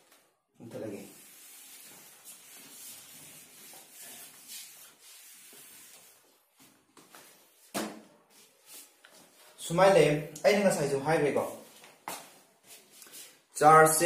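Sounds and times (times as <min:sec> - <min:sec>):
duster wiping whiteboard: 0:00.7 - 0:09.6.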